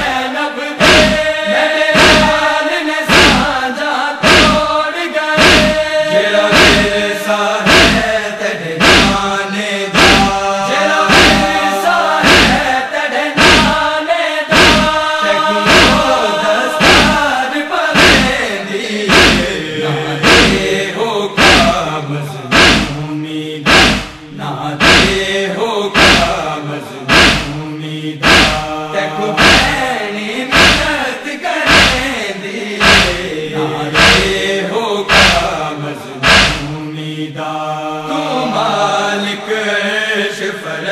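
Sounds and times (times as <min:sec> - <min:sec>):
men chanting in unison: 0:00.0 - 0:40.9
chest-beating slaps: 0:00.8 - 0:01.3, 0:01.9 - 0:02.5, 0:03.1 - 0:03.5, 0:04.2 - 0:04.8, 0:05.4 - 0:07.0, 0:07.7 - 0:08.1, 0:08.8 - 0:09.3, 0:10.0 - 0:12.7, 0:13.4 - 0:13.8, 0:14.5 - 0:17.2, 0:18.0 - 0:18.4, 0:19.1 - 0:19.6, 0:20.2 - 0:20.7, 0:21.4 - 0:21.8, 0:22.5 - 0:23.0, 0:23.7 - 0:25.2, 0:26.0 - 0:26.4, 0:27.1 - 0:27.6, 0:28.2 - 0:28.7, 0:29.4 - 0:29.8, 0:30.5 - 0:30.9, 0:31.7 - 0:32.1, 0:32.8 - 0:34.4, 0:35.1 - 0:35.5, 0:36.2 - 0:36.8.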